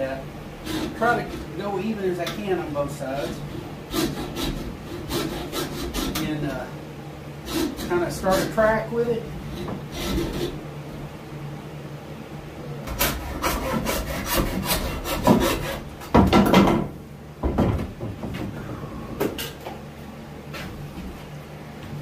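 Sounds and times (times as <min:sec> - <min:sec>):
hand saw rasping through bone: 0:00.6 - 0:01.5, 0:03.1 - 0:06.3, 0:07.4 - 0:08.6, 0:09.5 - 0:10.6, 0:12.9 - 0:15.8
knocks: 0:16.1 - 0:18.6.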